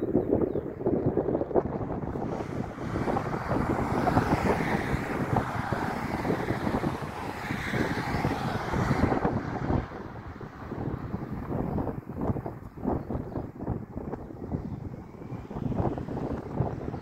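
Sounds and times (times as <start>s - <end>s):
distant jet engines rumbling: 0.0s - 17.0s
wind buffeting microphone: 0.0s - 17.0s
road traffic passing: 0.1s - 17.0s.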